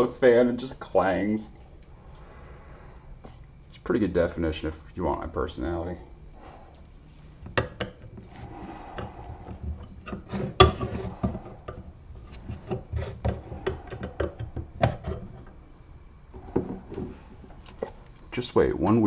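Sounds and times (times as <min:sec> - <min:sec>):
wooden pieces knocking and clicking: 0:07.4 - 0:08.2, 0:09.0 - 0:15.5.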